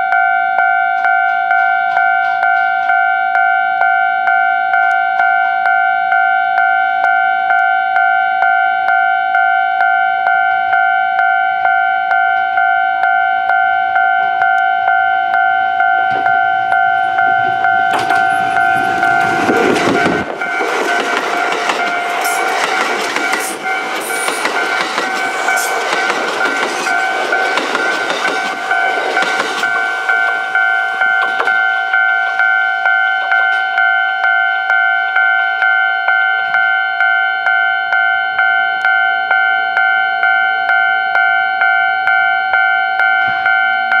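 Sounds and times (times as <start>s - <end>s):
level crossing bell ringing: 0.0s - 44.0s
train rushing past: 16.1s - 32.9s.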